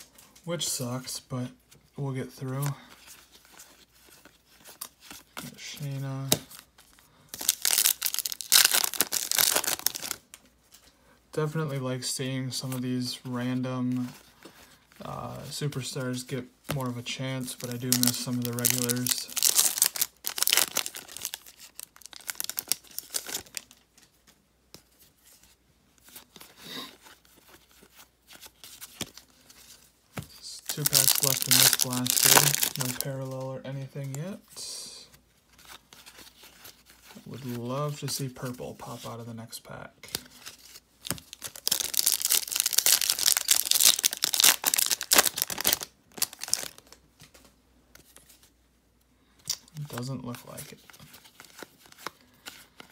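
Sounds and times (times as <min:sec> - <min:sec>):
card pack wrapper tearing: 0:07.4 - 0:10.2, 0:17.6 - 0:23.8, 0:30.6 - 0:33.1, 0:41.1 - 0:47.0.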